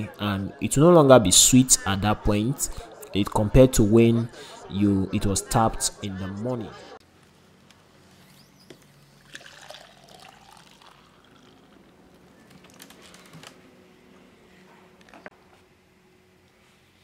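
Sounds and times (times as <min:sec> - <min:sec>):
liquid pouring into a cup: 0:09.2 - 0:12.1.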